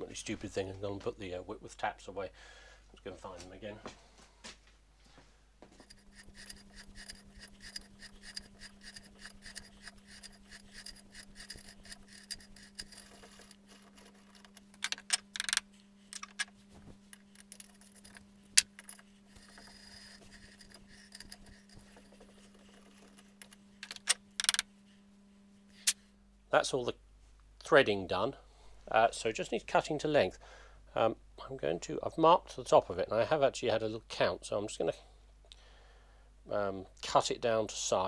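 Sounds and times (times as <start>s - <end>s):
steady low hum: 0.0s - 38.0s
metallic ticks and scrapes: 5.8s - 24.6s.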